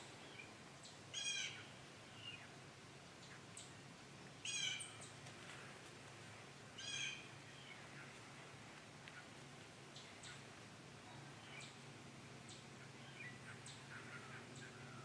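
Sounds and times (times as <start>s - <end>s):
bird calling: 0.0s - 2.6s, 4.4s - 5.2s, 6.8s - 8.2s, 9.1s - 10.5s, 12.5s - 15.0s.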